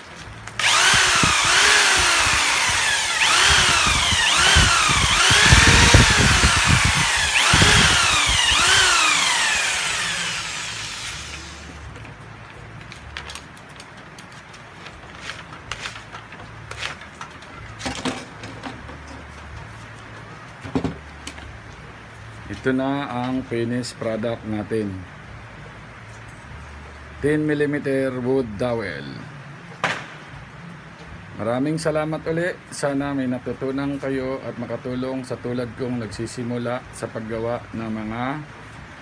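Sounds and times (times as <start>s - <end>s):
electric drill motor whine: 0.6s - 11.8s.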